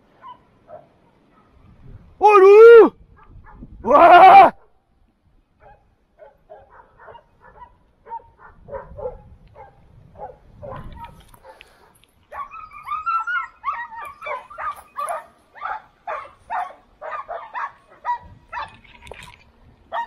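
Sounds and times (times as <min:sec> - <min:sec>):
dogs barking and yelping: 0:05.6 - 0:18.8.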